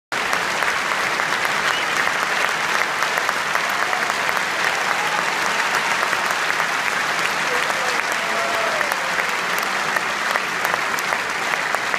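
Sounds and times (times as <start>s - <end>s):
audience applauding: 0.1s - 11.9s.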